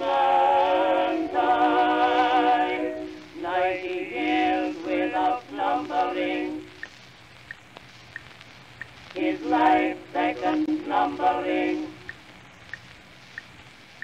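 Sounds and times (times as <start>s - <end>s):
singing with vibrato: 0.0s - 6.8s, 9.2s - 12.2s.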